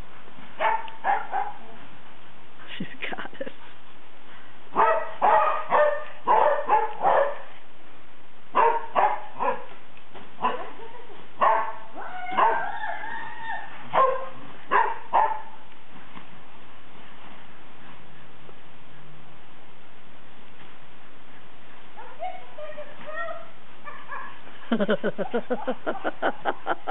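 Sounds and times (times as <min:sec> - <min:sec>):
dogs barking: 0:00.6 - 0:01.8, 0:04.7 - 0:07.5, 0:08.5 - 0:09.7, 0:10.4 - 0:13.0, 0:13.9 - 0:15.6
dog howling: 0:11.6 - 0:14.4.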